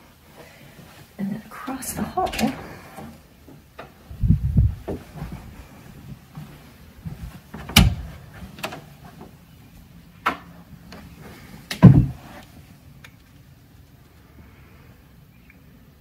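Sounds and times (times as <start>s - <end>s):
door thump: 7.7s - 8.1s, 11.8s - 12.2s
door latch clicks and knocks: 7.7s - 8.8s.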